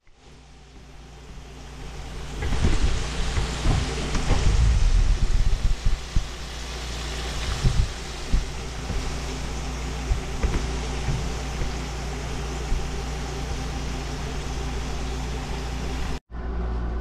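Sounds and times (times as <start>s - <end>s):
low hum: 0.0s - 17.0s
fish sizzling in hot oil: 1.2s - 16.2s
low knocks and bumps: 7.3s - 14.9s.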